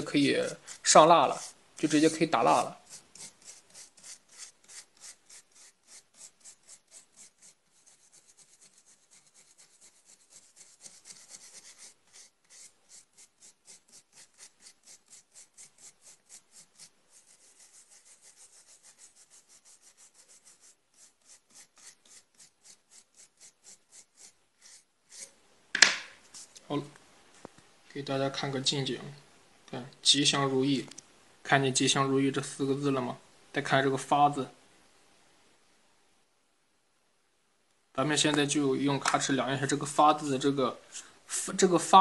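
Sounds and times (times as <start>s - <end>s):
brush scrubbing wood: 0.1s - 25.3s.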